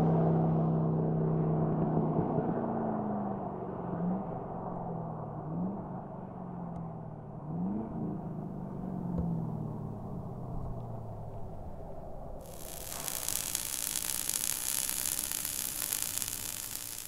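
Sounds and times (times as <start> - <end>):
car engine rumbling: 7.1 - 12.4
static hiss: 12.4 - 17.0.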